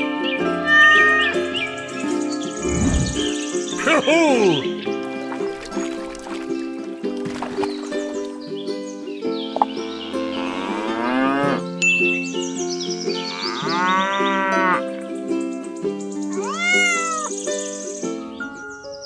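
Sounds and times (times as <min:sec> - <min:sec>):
background music: 0:00.0 - 0:19.0
cow mooing: 0:10.4 - 0:11.6, 0:13.3 - 0:14.8.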